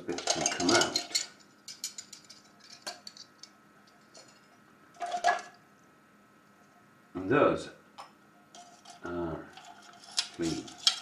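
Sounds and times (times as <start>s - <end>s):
metal parts clinking in steel bowl: 0.0s - 5.6s, 8.5s - 11.0s.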